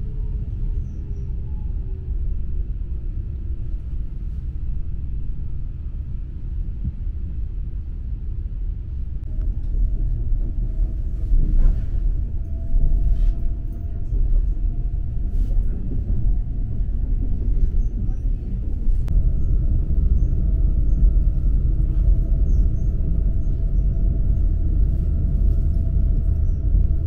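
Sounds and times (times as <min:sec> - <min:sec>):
train rumbling on track: 0:00.0 - 0:27.0
faint rising whine: 0:19.1 - 0:27.0.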